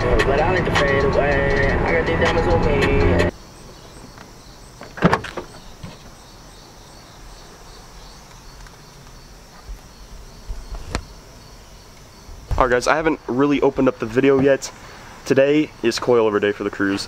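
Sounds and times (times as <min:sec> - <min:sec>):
insects chirping: 0:00.1 - 0:17.0.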